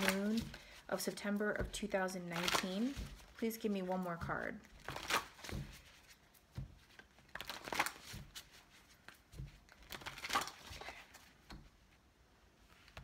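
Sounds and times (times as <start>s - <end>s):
cards rustling while shuffled: 0.0s - 11.7s.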